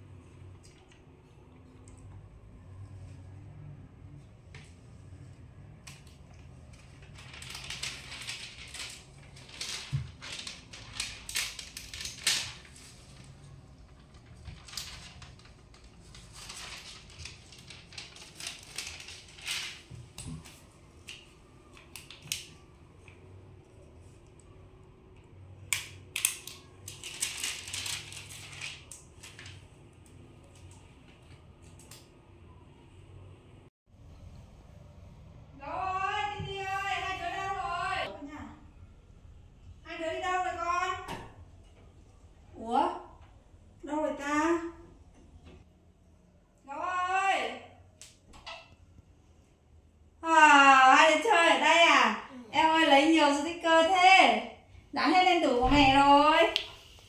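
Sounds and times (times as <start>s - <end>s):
crinkly crackling handling noise: 5.9s - 22.6s, 25.9s - 29.8s.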